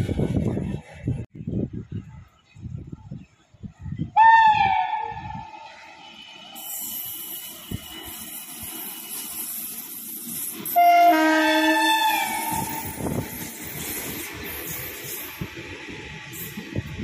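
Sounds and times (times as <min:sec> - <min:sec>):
train wheels hissing on rail: 0:05.4 - 0:17.0
locomotive air horn chord: 0:10.8 - 0:13.0.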